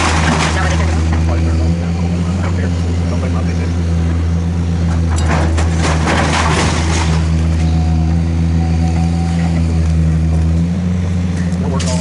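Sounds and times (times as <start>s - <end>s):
debris crumbling and clattering: 0.0s - 1.6s, 4.9s - 7.7s
excavator diesel engine running: 0.0s - 12.0s.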